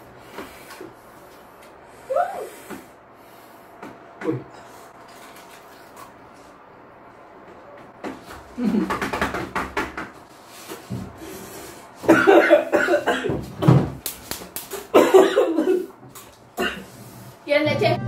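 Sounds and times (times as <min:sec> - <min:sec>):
man coughing hard: 0:12.0 - 0:13.8, 0:14.9 - 0:15.9, 0:16.6 - 0:16.9.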